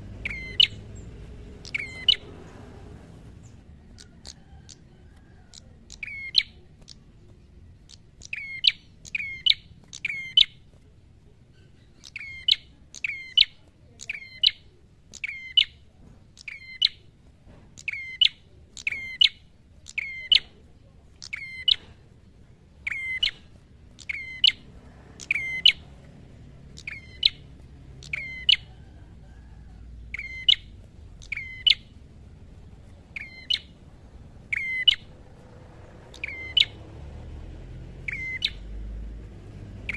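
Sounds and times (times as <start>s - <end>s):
bird calling sharp notes: 0.1s - 1.0s, 1.6s - 2.3s, 5.5s - 7.1s, 7.9s - 10.6s, 12.0s - 15.8s, 17.8s - 20.6s, 21.2s - 21.9s, 22.8s - 25.9s, 26.7s - 28.9s, 30.1s - 32.0s, 33.1s - 33.8s, 34.4s - 35.1s, 36.1s - 36.8s, 38.0s - 38.7s.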